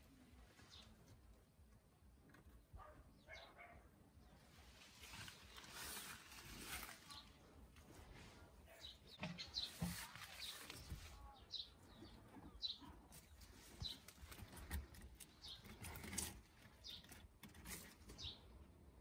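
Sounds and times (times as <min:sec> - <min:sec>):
rustling of leafy plants: 0:04.3 - 0:18.6.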